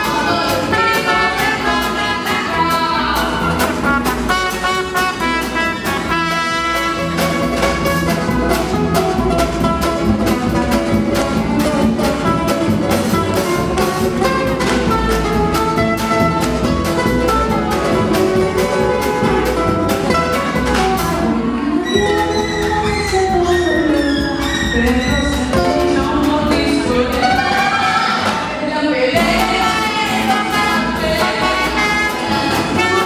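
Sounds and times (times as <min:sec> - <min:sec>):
upright double bass: 0:00.0 - 0:28.5, 0:29.1 - 0:33.0
acoustic guitar: 0:00.0 - 0:33.0
drums: 0:00.0 - 0:33.0.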